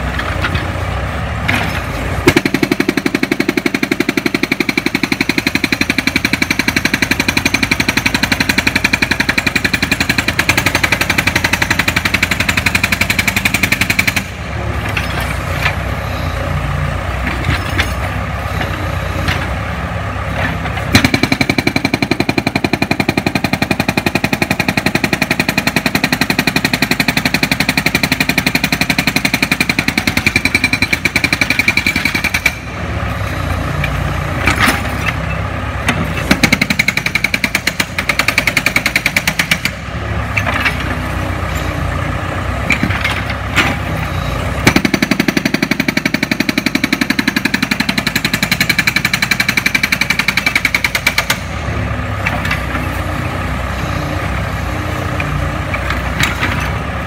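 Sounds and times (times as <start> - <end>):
hydraulic breaker hammering concrete: 1.6 - 15.8, 20.7 - 32.8, 35.9 - 40.9, 44.6 - 51.6.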